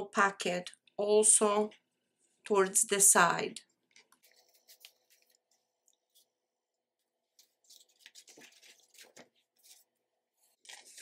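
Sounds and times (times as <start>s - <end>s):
paper rustling: 4.0s - 6.4s, 7.3s - 11.0s.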